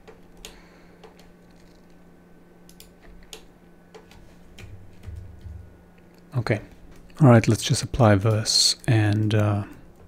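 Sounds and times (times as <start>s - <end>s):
steady low hum: 0.0s - 10.0s
keyboard and mouse clicks: 2.7s - 5.6s.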